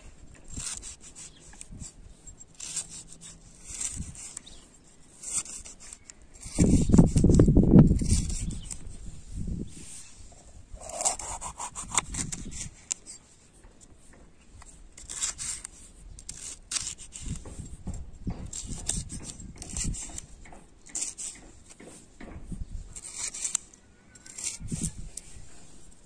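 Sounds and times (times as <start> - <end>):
knife slicing pepper on wood: 15.0 - 22.3.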